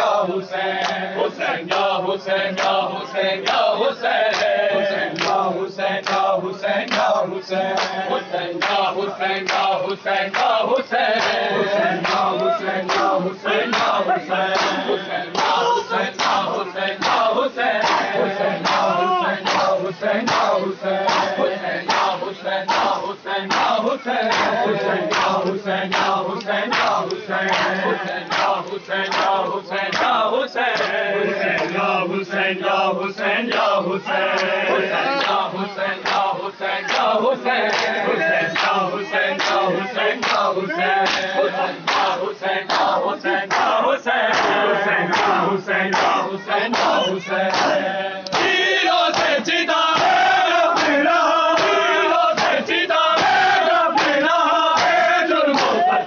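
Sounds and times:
crowd of men chanting: 0.0 - 56.0.

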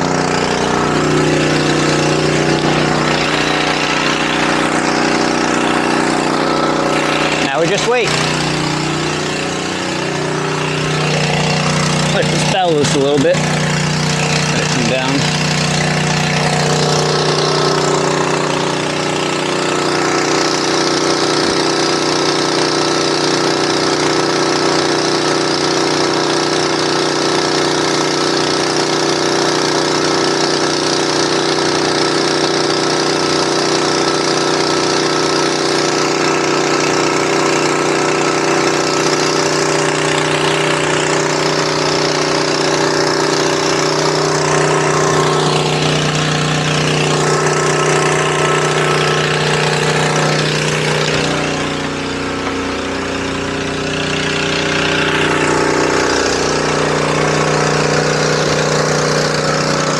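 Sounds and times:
small gasoline engine running: 0.0 - 59.9
water rushing from pump: 0.0 - 59.9.

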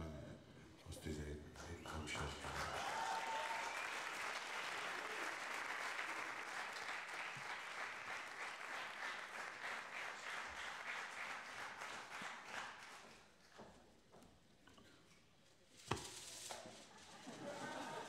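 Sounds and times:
audience applause: 2.0 - 13.3.

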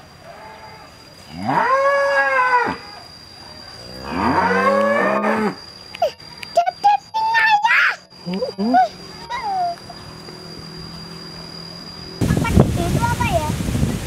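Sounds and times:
cows mooing: 0.2 - 3.0, 3.8 - 5.6.

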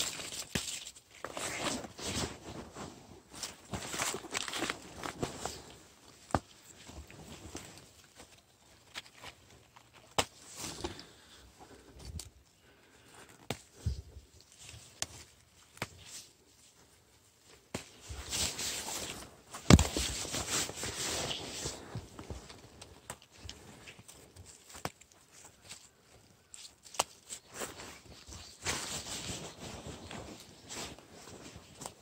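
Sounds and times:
twigs snapping: 0.0 - 1.4, 3.7 - 5.2, 22.5 - 25.9, 26.5 - 27.5
leaves and plants rustling: 0.0 - 11.9, 17.7 - 32.0.

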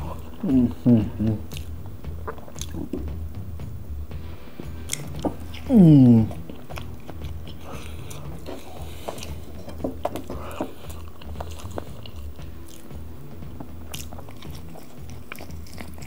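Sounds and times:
person chewing: 0.0 - 3.2, 4.7 - 16.0
wet mouth clicks and smacks: 1.2 - 3.1, 4.8 - 5.7, 13.9 - 16.0.

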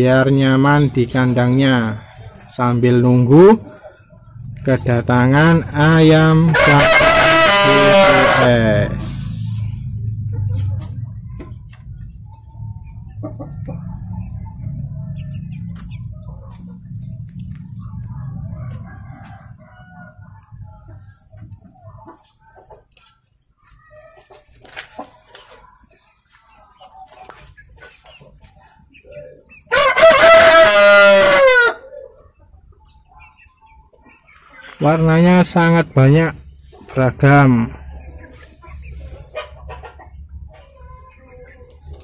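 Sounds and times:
chickens clucking softly: 0.0 - 42.0
rooster crowing: 6.4 - 9.2, 18.5 - 20.2, 29.7 - 31.9
low hum: 8.6 - 21.6.

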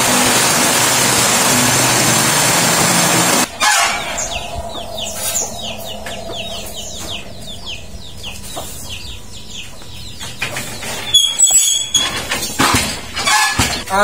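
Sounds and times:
birds chirping: 3.3 - 14.0
faint steady hum: 3.5 - 11.0.

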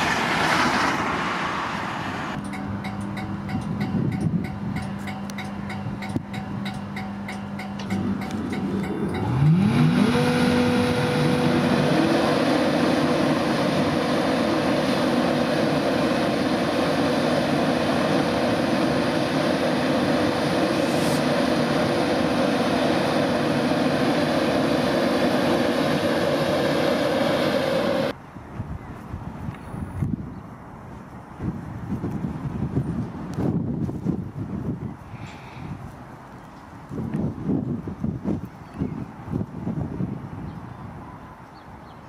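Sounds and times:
locomotive whine: 0.0 - 28.2
loud train running noise: 0.0 - 28.2.

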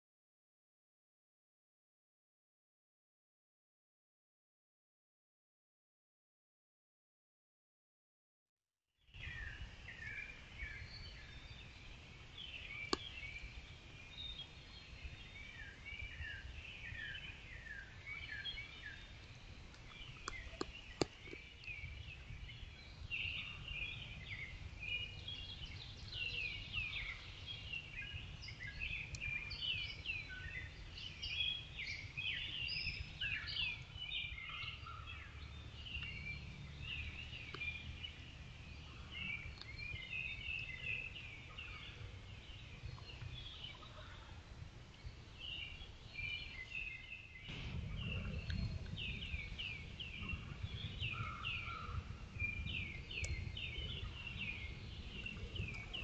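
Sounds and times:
songbirds chirping and whistling: 9.1 - 56.0
steady low rumble: 47.5 - 56.0.

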